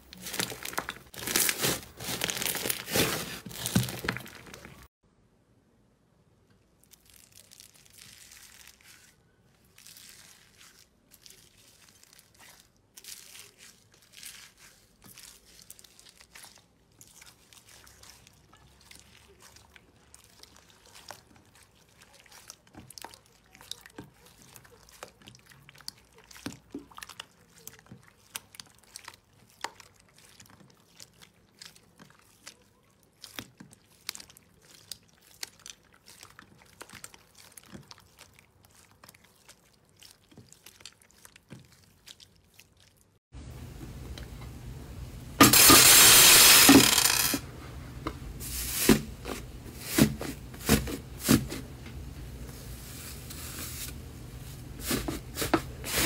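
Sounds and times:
hands rustling foam beads: 0.0 - 4.9, 6.7 - 43.3, 45.4 - 47.4, 48.4 - 56.0
slime crackling and popping: 0.0 - 4.9, 6.8 - 43.2.

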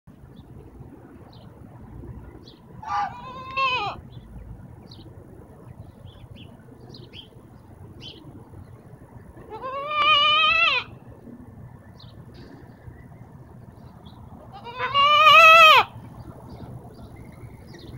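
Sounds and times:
young goat bleating: 2.8 - 4.0, 9.4 - 10.9, 14.5 - 15.9.

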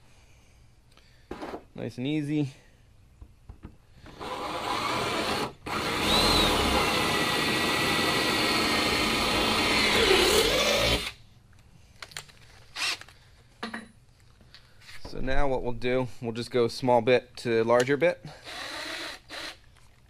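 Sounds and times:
cordless drill boring: 4.1 - 11.2, 12.8 - 13.0, 18.4 - 19.6.

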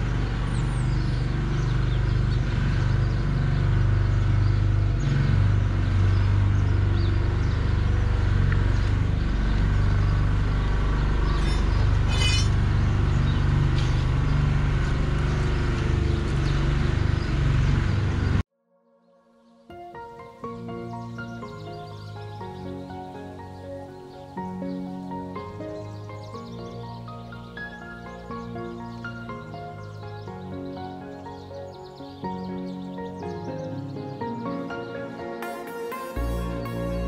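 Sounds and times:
engine running: 0.0 - 18.4.

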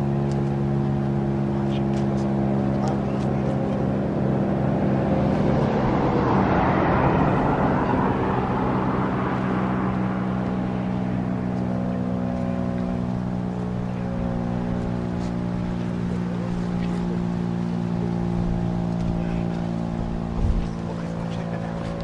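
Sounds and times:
passing vehicle rushing: 1.4 - 22.0
siren low steady tone: 2.4 - 22.0.

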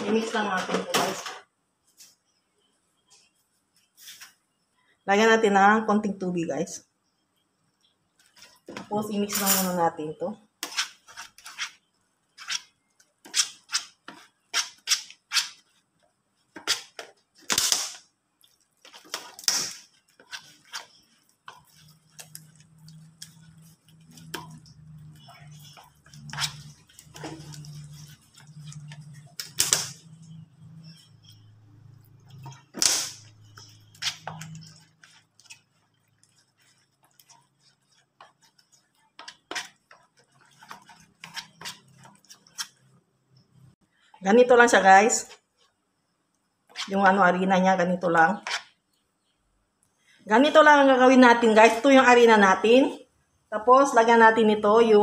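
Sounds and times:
metal spoon scraping plastic bowl: 8.2 - 15.8, 18.8 - 43.7, 46.7 - 47.2, 48.1 - 48.8.

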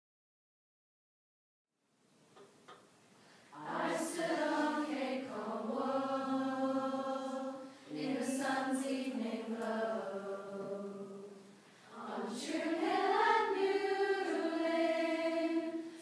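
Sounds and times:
women's choir singing: 3.5 - 16.0.

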